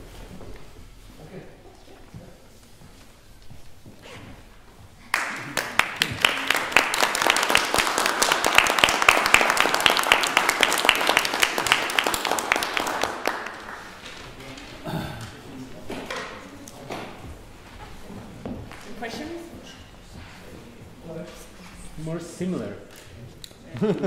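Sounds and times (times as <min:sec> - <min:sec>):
audience applause: 0:05.1 - 0:14.1.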